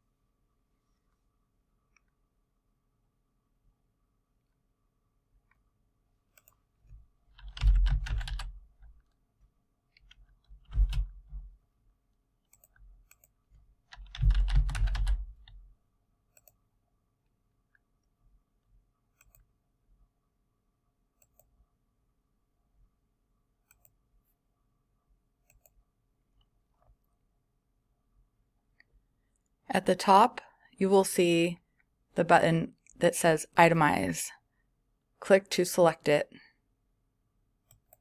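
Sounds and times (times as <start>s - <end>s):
faint clicks: 6.3s - 7.0s
typing on computer keyboard: 7.3s - 8.7s, 9.9s - 11.3s, 12.5s - 15.6s.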